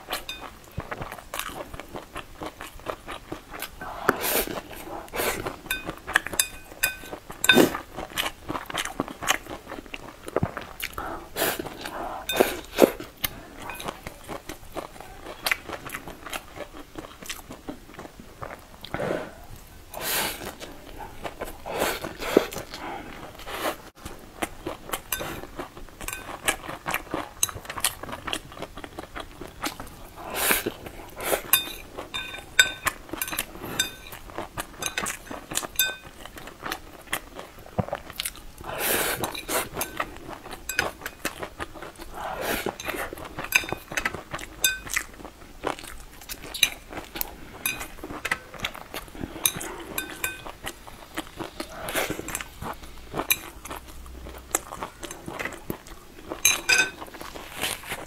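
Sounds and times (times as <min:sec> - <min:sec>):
chewing and slurping noodles: 0:00.0 - 0:58.0
chopsticks scraping porcelain bowl: 0:05.4 - 0:07.8, 0:12.2 - 0:12.9, 0:13.6 - 0:14.1, 0:26.1 - 0:26.4, 0:31.3 - 0:34.2, 0:39.2 - 0:41.2, 0:49.4 - 0:50.6, 0:56.4 - 0:57.0
bowl ringing: 0:31.6 - 0:32.9, 0:56.5 - 0:57.0.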